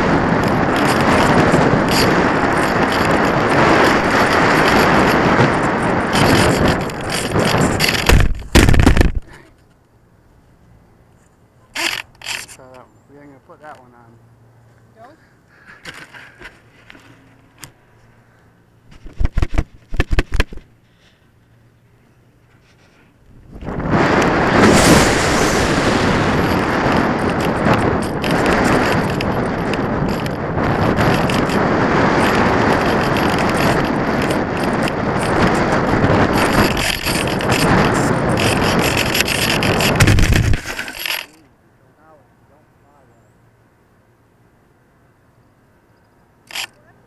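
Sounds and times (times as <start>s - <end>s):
wind rushing over camera: 0.0s - 9.5s, 11.7s - 12.6s, 18.8s - 20.8s, 22.4s - 41.4s, 46.4s - 46.8s
scattered clicks: 0.0s - 9.9s, 11.8s - 12.8s, 26.3s - 41.5s, 46.0s - 46.8s
glider landing thud and scrape: 6.2s - 9.3s, 23.6s - 29.9s.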